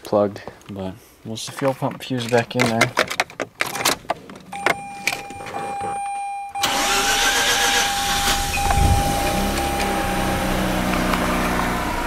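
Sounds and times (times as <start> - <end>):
steady high tone: 4.6 - 11.5
engine starter clicks: 6.6 - 10.0.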